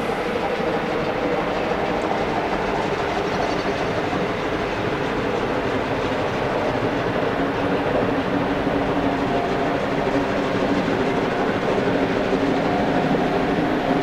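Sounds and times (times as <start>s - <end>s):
distant steam train running: 0.0s - 14.0s.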